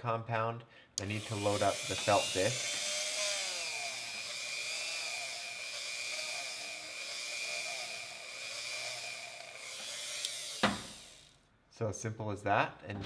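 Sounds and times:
rotary tool high whine: 0:01.0 - 0:11.4.

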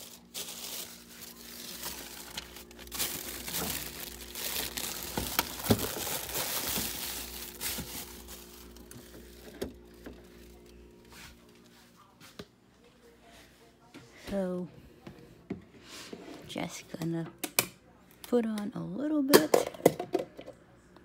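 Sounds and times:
plastic crinkling and rustling: 0:00.0 - 0:11.7.

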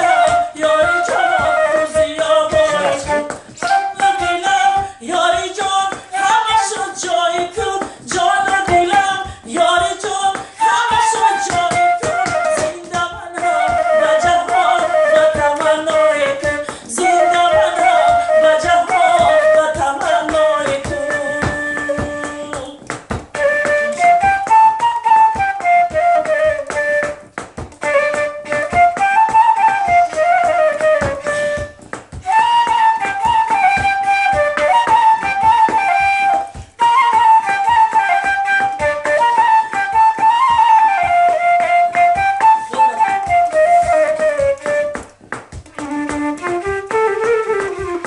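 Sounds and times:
flute playing a melody: 0:00.0 - 0:04.9, 0:06.1 - 0:07.0, 0:10.6 - 0:22.4, 0:23.3 - 0:48.0
steady beat: 0:02.0 - 0:03.6.

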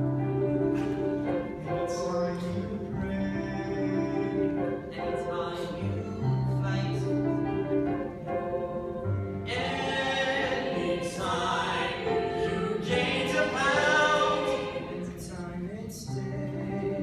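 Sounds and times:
choir singing sustained chords: 0:06.7 - 0:15.5.

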